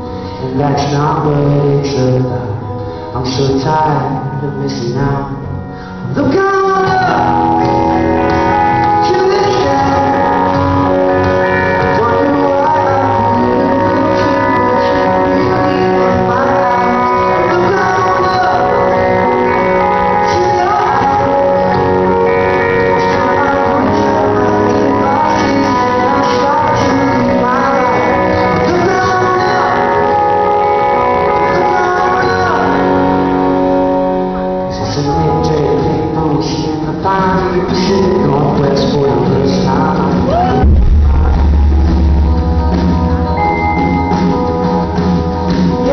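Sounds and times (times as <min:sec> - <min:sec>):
electric guitar: 0:00.0 - 0:45.9
live rock band playing: 0:00.0 - 0:45.9
person singing: 0:00.0 - 0:45.9
acoustic guitar strumming: 0:36.7 - 0:45.9.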